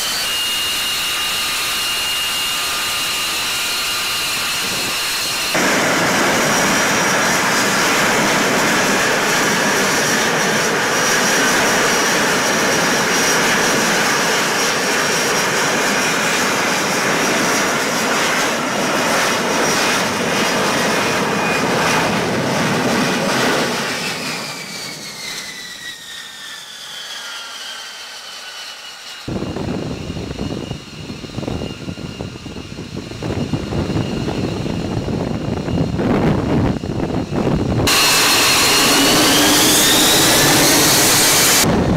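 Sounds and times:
high whine: 0.0s - 18.5s, 29.3s - 41.9s
jet engine roaring: 0.0s - 41.9s.

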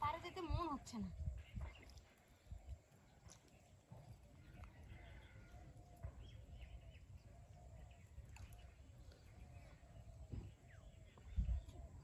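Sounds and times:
faint animal calls: 3.9s - 10.6s.

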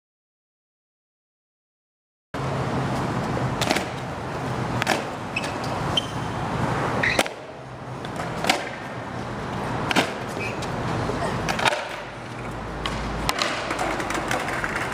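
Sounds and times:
outdoor noise: 2.4s - 14.9s
skateboard clacking on concrete: 3.5s - 4.1s, 4.8s - 5.8s, 7.0s - 14.9s.

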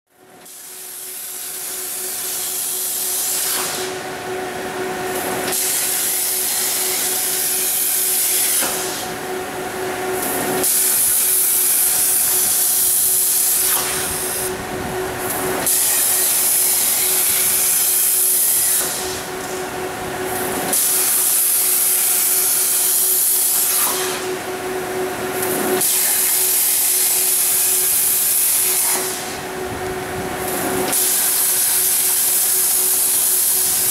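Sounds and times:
constant machine hum: 0.1s - 33.9s
plasma arc hissing: 10.2s - 14.6s, 15.6s - 19.2s.

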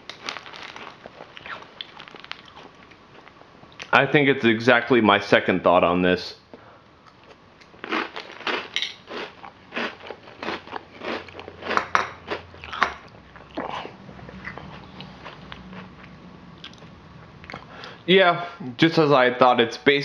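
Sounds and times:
cereal crunching in mouth: 0.0s - 3.4s, 7.1s - 16.9s.

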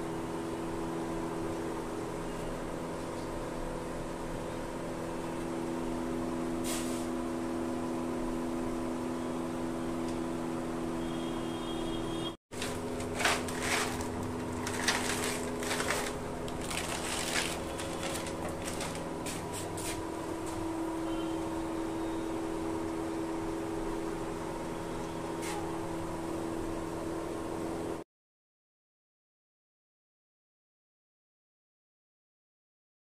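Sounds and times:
air compressor humming: 10.9s - 22.4s.

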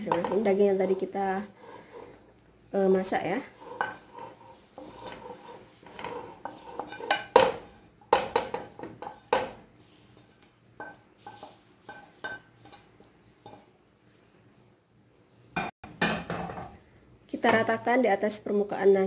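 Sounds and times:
utensil knocking on pans: 0.0s - 1.1s, 6.4s - 9.6s, 15.6s - 16.8s, 17.4s - 17.8s.

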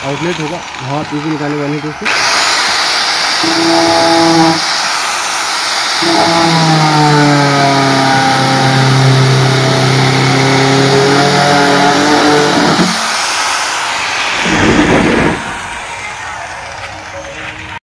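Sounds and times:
power tool motor running: 0.0s - 16.9s.

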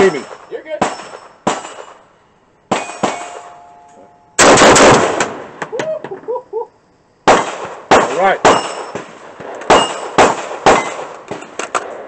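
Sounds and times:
rifle gunshots: 0.0s - 2.0s, 2.7s - 3.5s, 4.4s - 5.6s, 7.2s - 12.0s.

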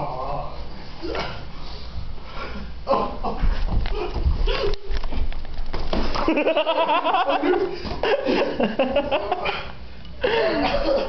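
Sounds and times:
people laughing: 6.1s - 11.0s.

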